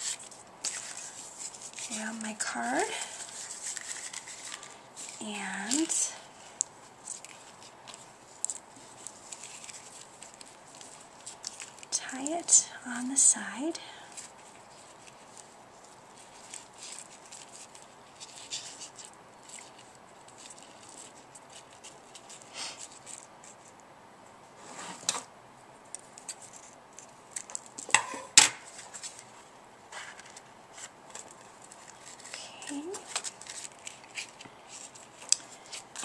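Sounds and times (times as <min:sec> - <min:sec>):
paper rustling: 0:00.0 - 0:12.0, 0:14.1 - 0:23.8, 0:26.0 - 0:36.0.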